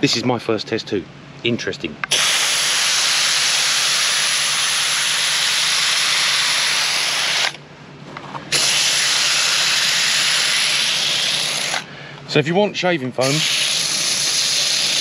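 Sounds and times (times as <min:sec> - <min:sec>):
foam sprayer hissing: 0:02.1 - 0:07.6, 0:08.5 - 0:11.9, 0:13.2 - 0:15.0.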